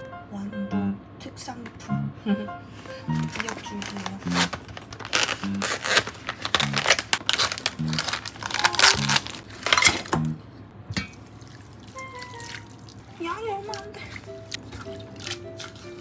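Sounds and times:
background music with low note: 0.0 - 10.7, 11.8 - 16.0
packaging crinkling and rustling: 3.1 - 10.1.

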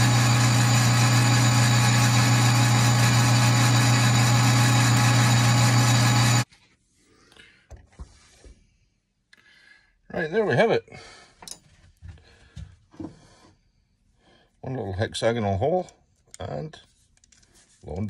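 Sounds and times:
metal lathe humming: 0.0 - 6.4.

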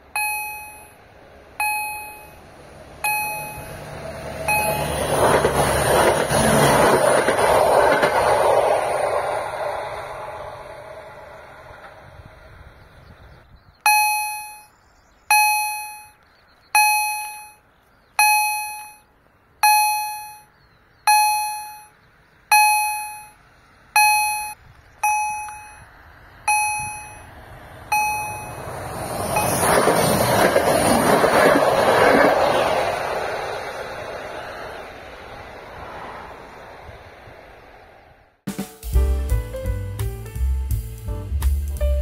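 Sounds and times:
passenger train passing: 0.0 - 13.5, 22.5 - 42.0
level-crossing warning gong: 1.6 - 5.2, 27.9 - 28.7.

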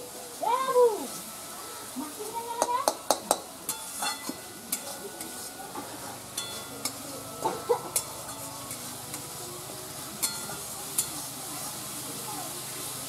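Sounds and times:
paste sizzling in pan: 0.0 - 13.0
metal spatula clinking and scraping: 3.3 - 9.4, 10.2 - 11.3.

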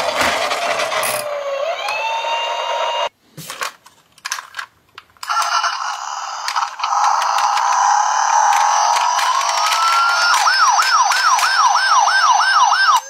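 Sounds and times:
toy police siren wailing: 1.3 - 3.1, 5.3 - 13.0
plastic toy cars clicking: 3.6 - 13.0.

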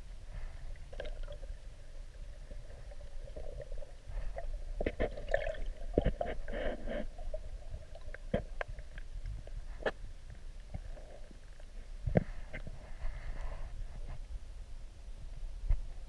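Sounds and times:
underwater water gurgling: 0.3 - 11.8.

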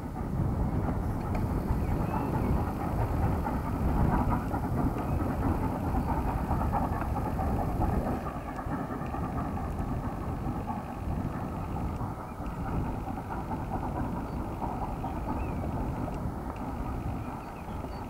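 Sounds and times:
distant train rumble: 0.0 - 18.0.

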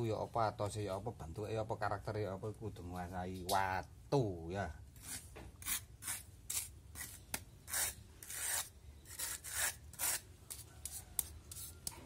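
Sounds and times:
trowel scraping mortar: 5.0 - 12.0.

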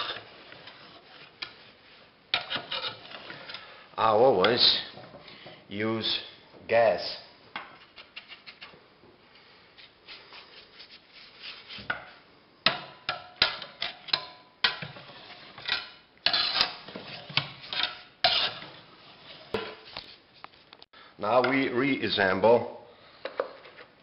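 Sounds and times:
brush scrubbing metal blades: 16.3 - 19.6.

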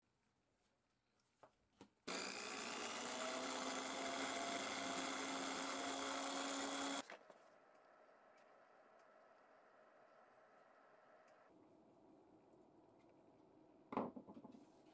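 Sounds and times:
drill press drilling wood: 2.1 - 7.0.

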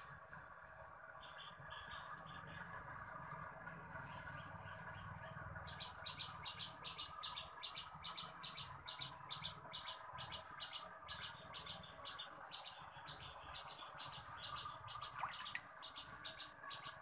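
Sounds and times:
small bird chirping: 4.3 - 17.0.

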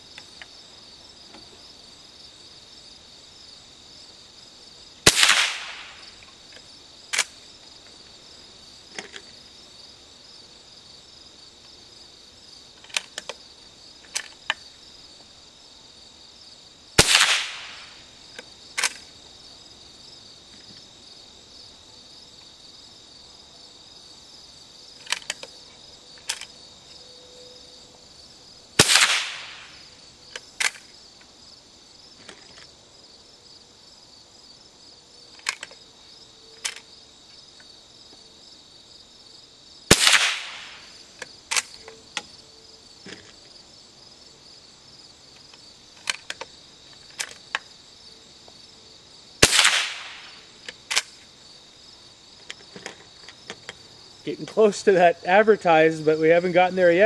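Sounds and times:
crickets chirping: 0.0 - 57.0
rifle shots: 5.0 - 6.0, 17.0 - 18.0, 28.8 - 29.8, 39.9 - 40.9, 49.4 - 51.1
rifle bolt clicks: 50.9 - 51.2.

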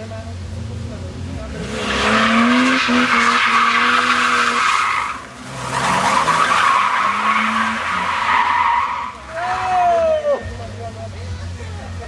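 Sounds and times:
car engine at high revs: 0.0 - 9.4
tyres squealing on pavement: 1.5 - 10.7.

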